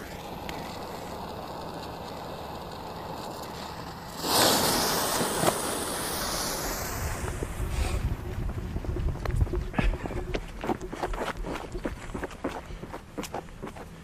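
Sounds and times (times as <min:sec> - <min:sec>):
firework fuse hissing: 0:00.0 - 0:08.4
wind rumbling on microphone: 0:05.0 - 0:12.8.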